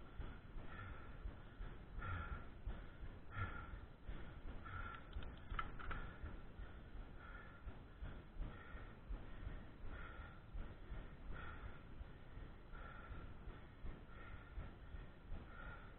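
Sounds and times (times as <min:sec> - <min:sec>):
cyclist breathing hard: 0:00.0 - 0:15.9
low steady rumble: 0:00.0 - 0:15.9
faint clicks: 0:04.7 - 0:06.4.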